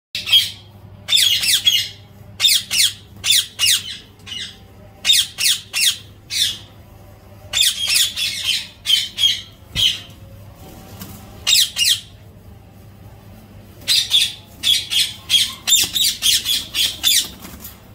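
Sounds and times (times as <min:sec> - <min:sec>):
parakeets squawking: 0:00.2 - 0:06.8, 0:07.5 - 0:10.1, 0:11.4 - 0:12.2, 0:13.8 - 0:17.6.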